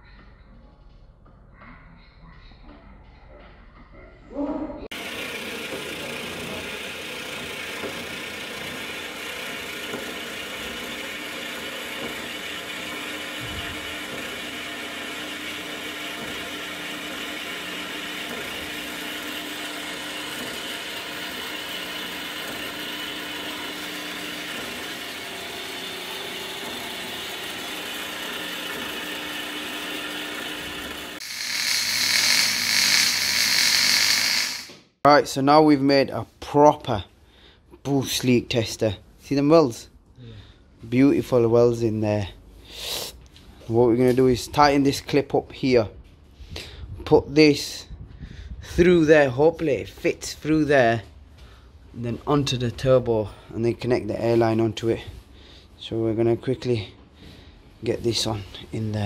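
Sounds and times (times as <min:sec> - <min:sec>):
band saw cutting steel pipe: 0:04.9 - 0:34.8
welding hiss: 0:31.2 - 0:34.7.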